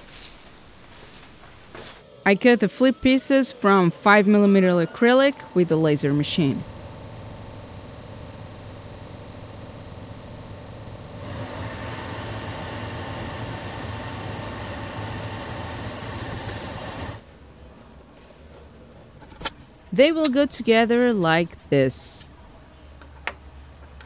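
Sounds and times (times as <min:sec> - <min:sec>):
laser cutter humming: 0:02.1 - 0:17.2.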